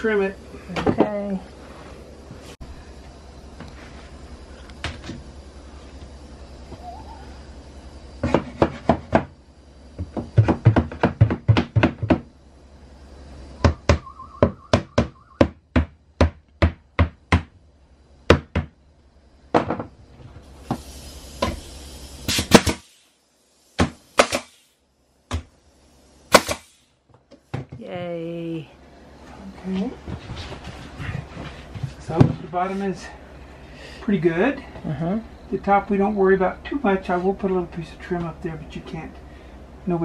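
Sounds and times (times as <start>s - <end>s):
hammer tapping wood boards: 10.0s - 12.3s
nail gun shots: 22.3s - 23.0s, 23.8s - 24.7s, 26.3s - 26.9s.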